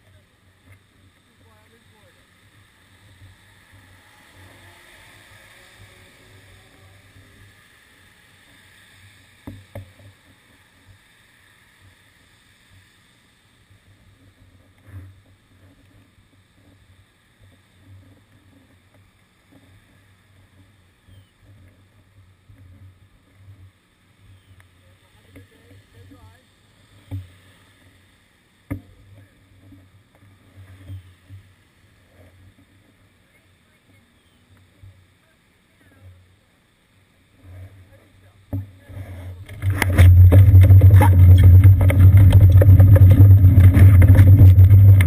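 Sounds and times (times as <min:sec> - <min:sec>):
low car rumbles: 0:39.5 - 0:45.0.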